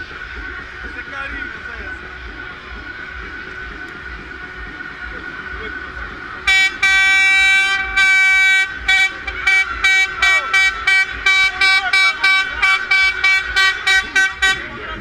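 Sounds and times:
loud horn blasts and toots: 6.4s - 15.0s.

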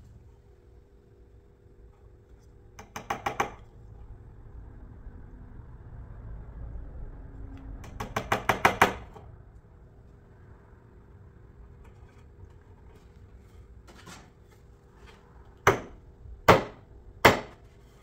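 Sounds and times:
hammer tapping nail into wood: 2.8s - 3.6s, 7.8s - 9.1s, 15.6s - 17.6s.

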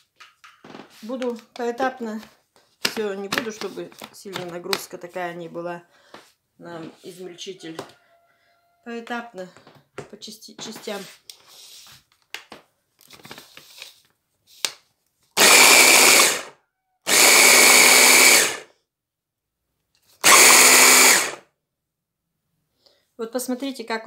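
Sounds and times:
food chopper motor whining: 15.4s - 18.7s, 20.2s - 21.4s.

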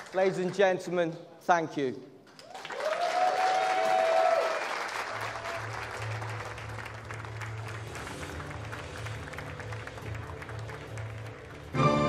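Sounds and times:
audience applauding: 0.0s - 0.8s, 2.3s - 12.0s
person cheering: 2.8s - 4.6s.

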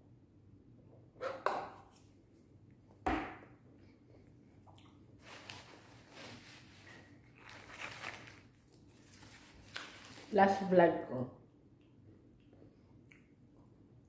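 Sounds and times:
paper wrapper rustling: 5.2s - 10.5s.

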